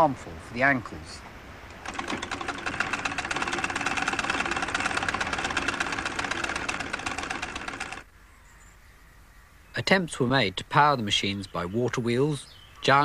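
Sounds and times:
sewing machine running: 1.8 - 8.1.

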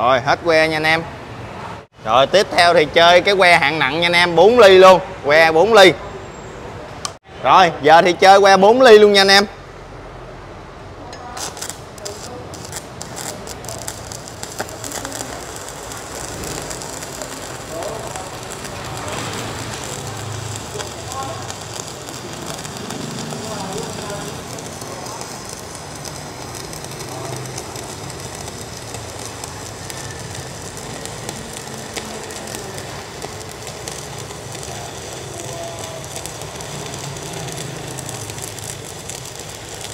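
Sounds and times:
welding arcs crackling: 11.1 - 39.9
spatter pops: 11.2 - 39.9.

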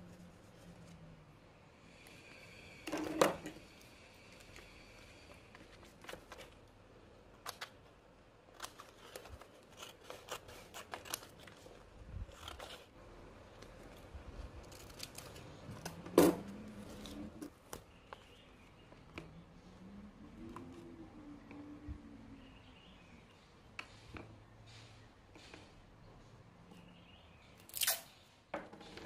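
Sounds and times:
scissors snipping paper: 8.5 - 12.9.

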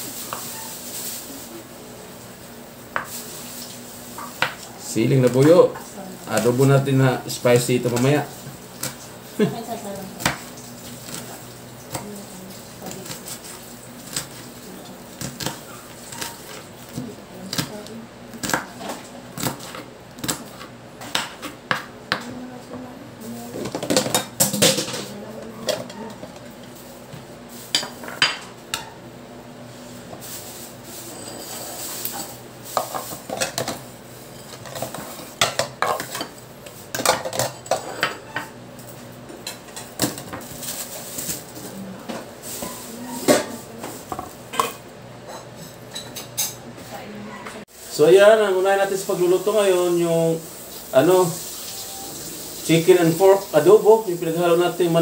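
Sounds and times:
knife scraping board: 31.0 - 33.1.

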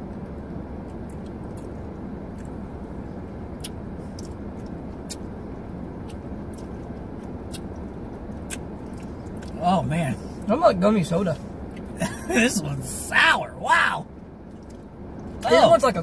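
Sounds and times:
car interior hum: 0.0 - 16.0
chewing smacks: 0.8 - 2.6, 3.6 - 5.3, 6.0 - 9.6, 14.4 - 15.5.

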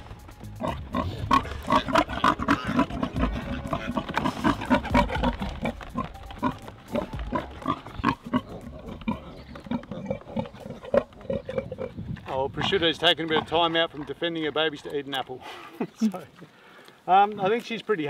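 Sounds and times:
pig grunting: 0.6 - 14.6.

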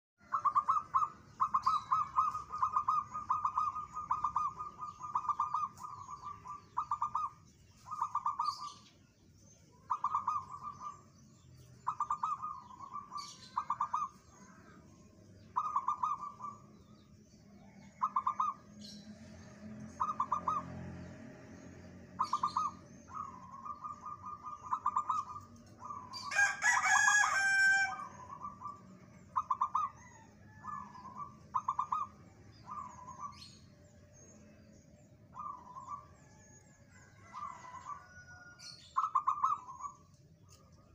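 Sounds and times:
dove cooing: 0.2 - 8.8, 9.9 - 11.1, 11.8 - 14.7, 15.5 - 16.7, 17.6 - 18.9, 19.9 - 20.8, 22.2 - 33.6, 35.3 - 40.0
loud bird call: 0.2 - 8.9, 22.1 - 34.6, 35.3 - 40.0.

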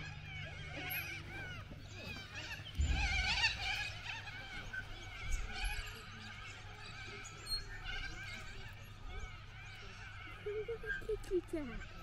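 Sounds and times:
metal swing squeaking: 0.0 - 8.8
wind rumble on microphone: 2.4 - 6.2
bump: 2.7 - 4.2.

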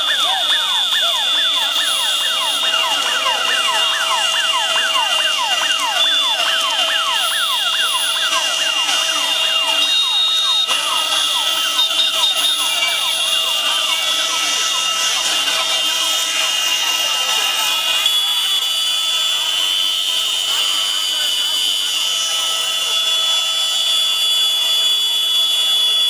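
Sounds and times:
electronic sirens wailing: 0.0 - 26.0.

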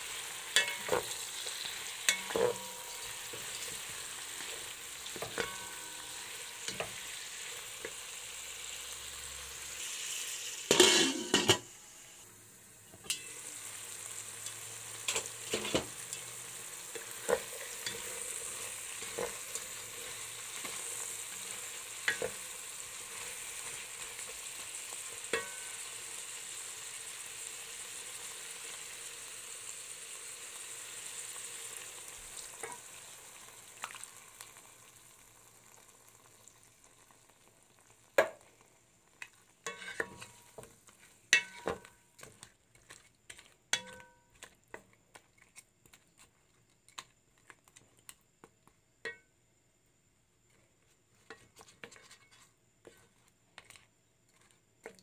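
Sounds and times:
shrimp sizzling in hot oil: 0.0 - 46.3
wooden spatula scraping a pot: 10.7 - 11.6, 14.4 - 24.6, 39.2 - 48.0, 50.5 - 55.0.

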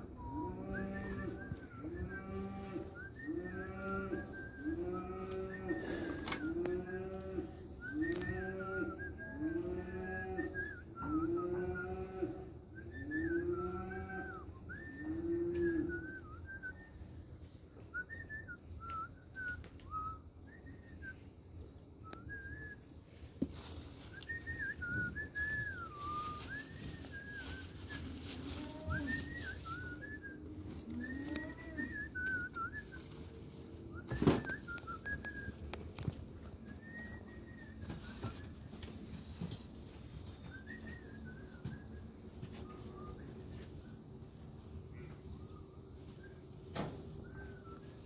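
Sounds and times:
plastic glove rustling: 23.3 - 36.0.

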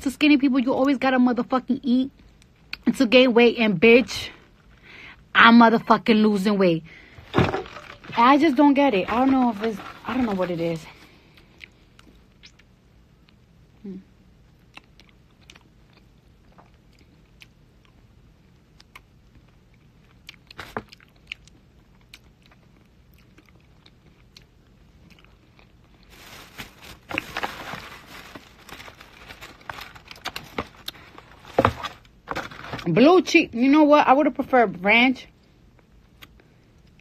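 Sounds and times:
foil crinkling: 7.3 - 11.1, 26.0 - 33.1.

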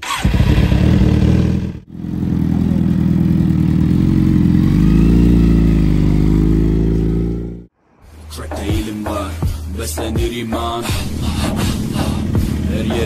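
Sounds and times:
motorcycle engine running: 0.1 - 7.7, 11.3 - 13.0.

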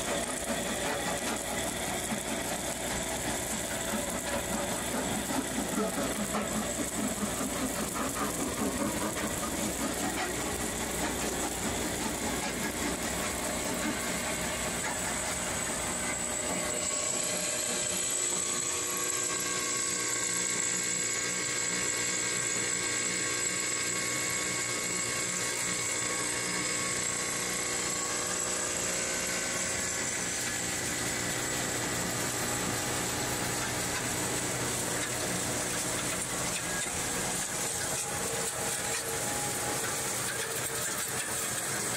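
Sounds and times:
ore-milling plant droning: 0.0 - 18.1, 26.5 - 41.9.

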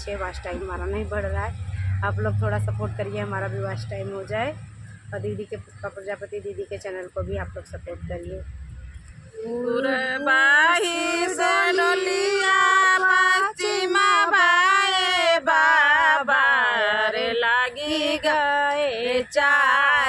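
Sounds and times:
women singing without instruments: 9.4 - 20.0.

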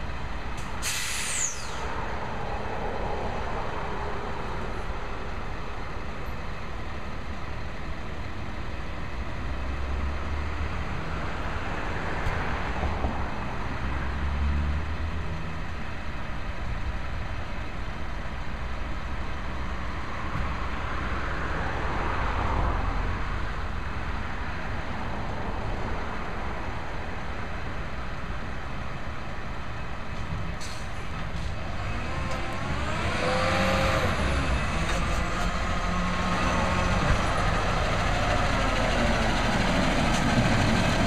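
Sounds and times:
garbage truck diesel engine rumble: 29.9 - 41.0.

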